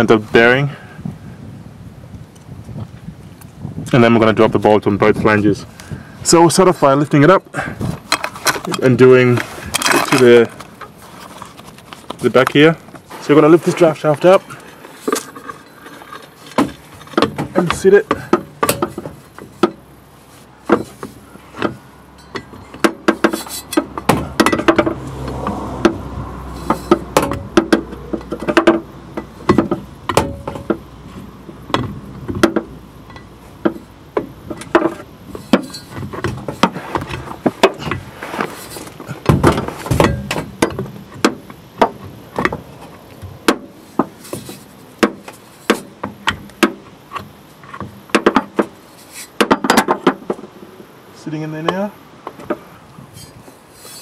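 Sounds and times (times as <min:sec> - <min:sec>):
driveshaft knocks and clunks: 0:12.1 - 0:20.0, 0:20.6 - 0:50.6
metal on metal taps: 0:15.1 - 0:19.8, 0:20.7 - 0:26.0, 0:31.7 - 0:38.1.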